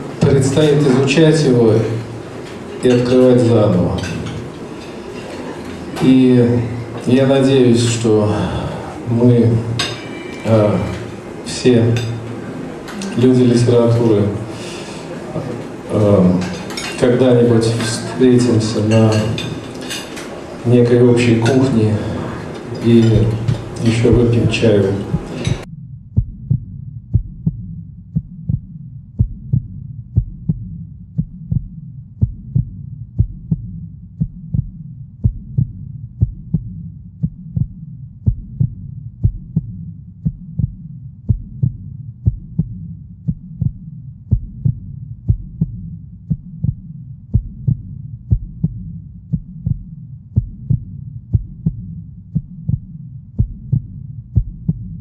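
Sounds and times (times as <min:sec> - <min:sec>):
steady low hum: 0:00.0 - 0:55.0
low thumping pulse: 0:23.1 - 0:55.0.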